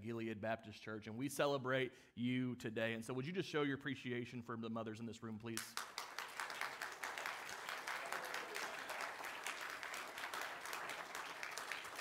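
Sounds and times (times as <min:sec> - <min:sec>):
crowd applauding: 0:05.8 - 0:12.0.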